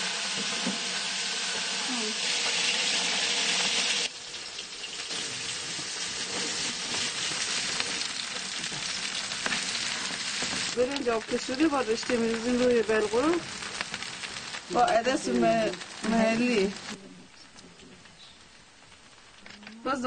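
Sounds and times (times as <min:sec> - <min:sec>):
hot oil sizzling in pot: 0:00.0 - 0:20.0.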